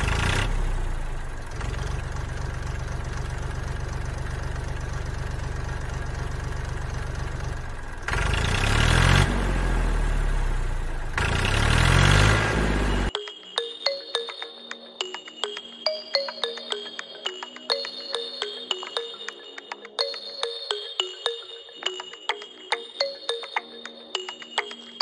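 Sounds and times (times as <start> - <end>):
small diesel engine running: 0.0 - 13.1.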